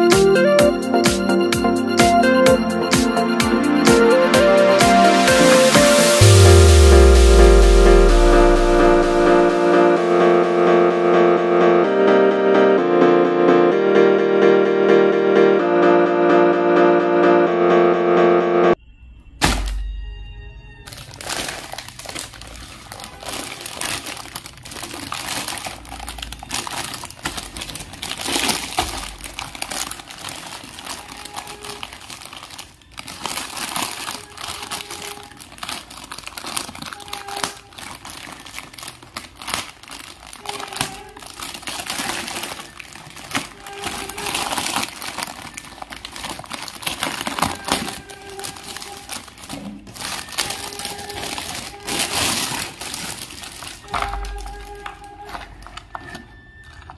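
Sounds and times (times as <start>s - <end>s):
plastic packaging crinkling: 20.8s - 56.9s.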